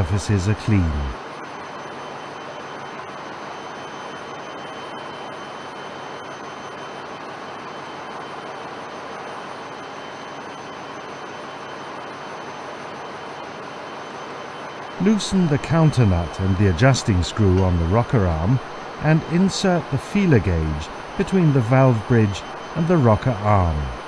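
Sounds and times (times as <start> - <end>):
faint high-pitched tones: 0.0 - 24.0
steady rushing noise: 14.8 - 24.0.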